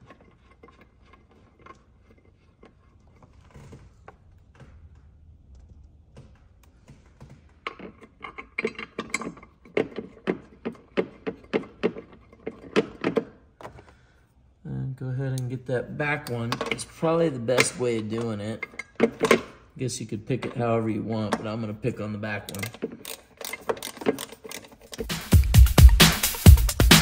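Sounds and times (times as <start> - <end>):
bolts threaded by hand clicking: 0.0 - 14.0, 15.3 - 26.6
ratchet wrench clicking: 22.5 - 25.3.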